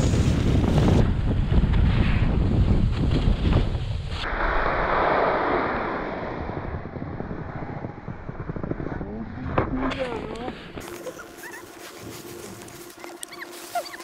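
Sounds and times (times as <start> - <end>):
wind buffeting microphone: 0.0 - 4.2, 5.8 - 10.8
skis hissing over snow: 10.8 - 14.0.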